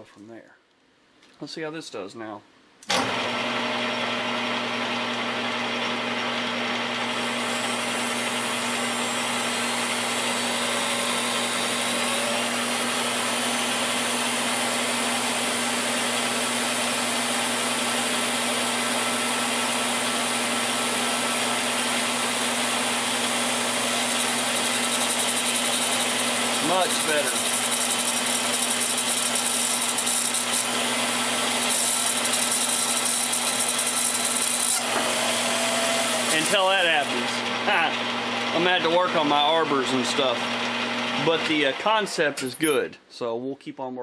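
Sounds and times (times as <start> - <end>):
rotary tool grinding steel: 7.1 - 37.5.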